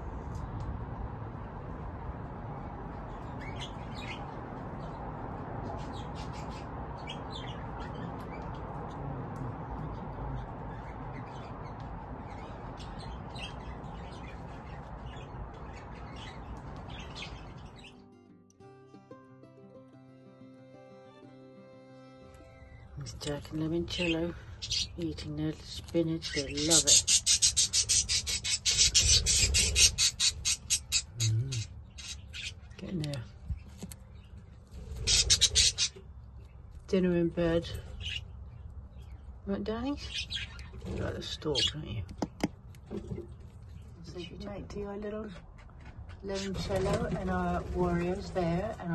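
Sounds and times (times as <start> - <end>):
budgies chirping and tweeting: 3.1 - 8.8, 9.8 - 18.0, 22.6 - 36.6, 37.2 - 42.0
young budgies rasping calls: 23.4 - 33.2, 34.2 - 36.1, 37.4 - 42.0
person humming: 31.2 - 31.6.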